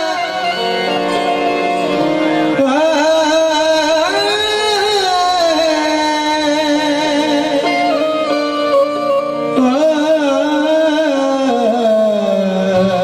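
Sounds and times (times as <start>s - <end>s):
harmonium playing held notes: 0.0s - 13.0s
man singing ornamented phrases: 2.5s - 8.2s, 9.6s - 13.0s.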